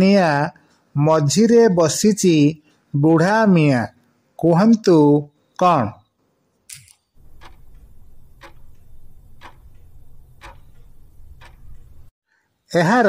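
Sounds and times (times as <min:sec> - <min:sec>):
clock ticks: 0:07.2 - 0:12.1.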